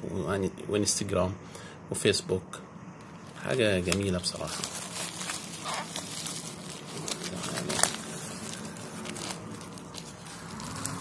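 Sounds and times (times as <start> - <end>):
bubble wrap crackling: 3.1 - 11.0.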